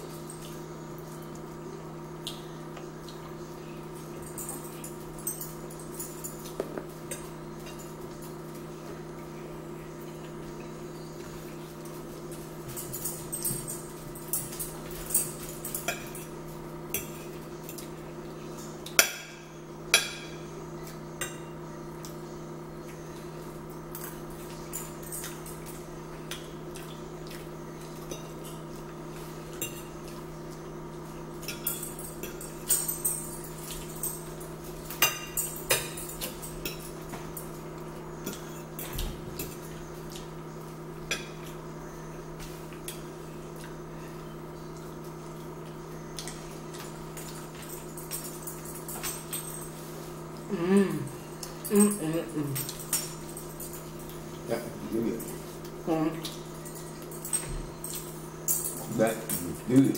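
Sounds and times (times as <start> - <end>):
steady background hum: 0.0 - 59.9
forks clinking on plates: 4.0 - 8.6, 11.8 - 21.6, 23.8 - 30.2, 31.4 - 39.8, 46.2 - 50.0, 51.0 - 59.9.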